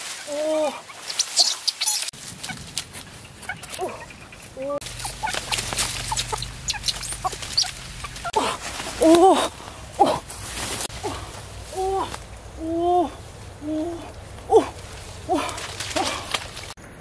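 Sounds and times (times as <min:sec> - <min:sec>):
leaves rustling: 0:00.0 - 0:16.8
chicken clucking: 0:03.5 - 0:08.4.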